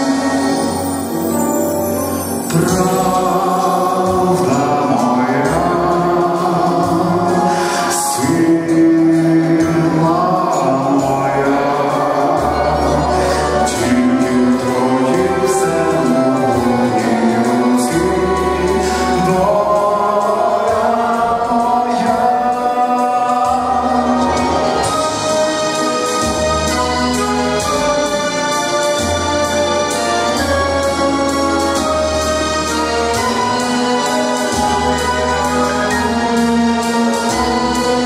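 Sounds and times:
man singing into microphone: 0.0s - 27.7s
musical accompaniment with bass: 0.0s - 38.0s.

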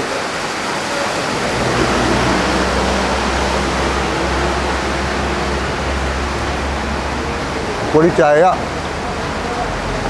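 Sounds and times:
diesel truck engine rumbling: 0.6s - 10.0s.

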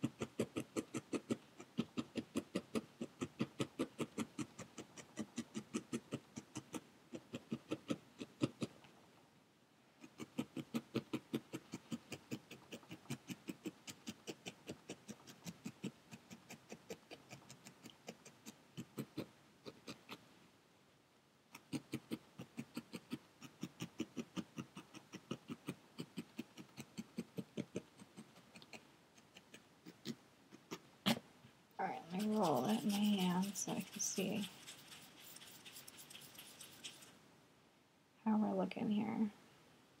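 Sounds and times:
felting needle tapping: 32.0s - 37.1s.

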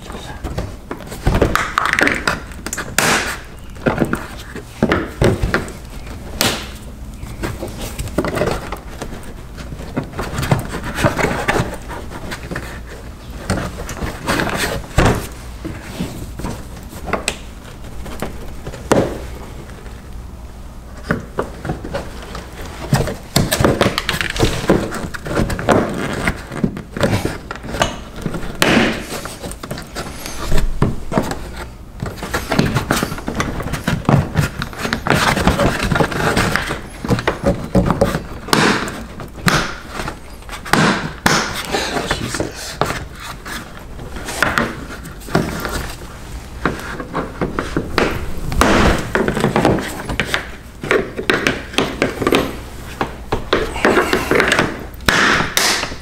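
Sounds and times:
plastic knocks clicks and scrapes: 21.0s - 46.0s.

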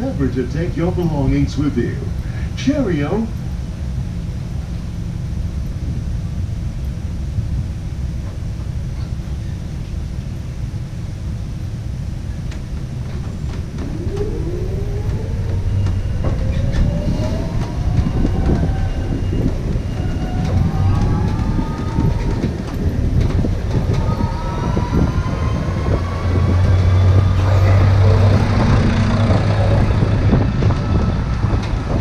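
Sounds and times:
low hum: 0.0s - 32.0s
road noise: 0.0s - 32.0s
electric drive whine rising: 11.6s - 32.0s
knocks and rattles: 12.4s - 25.2s.

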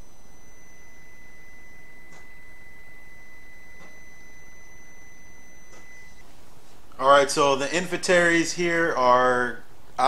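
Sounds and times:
high electronic tone: 0.0s - 6.2s.

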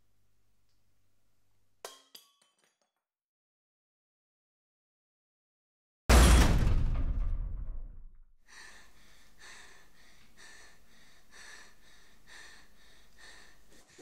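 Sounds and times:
loud crash: 6.1s - 8.2s
girl gasping breaths: 8.5s - 14.0s.

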